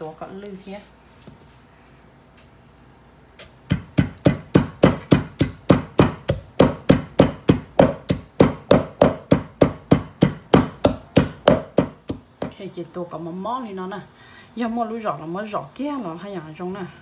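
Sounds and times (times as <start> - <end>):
pestle pounding in mortar: 3.4 - 12.6.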